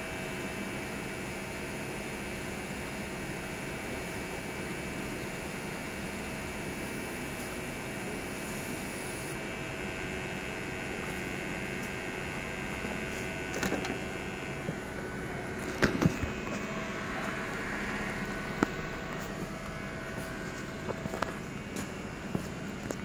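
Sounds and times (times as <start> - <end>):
workshop machine hum: 0.0 - 23.0
high-pitched whine: 8.1 - 23.0.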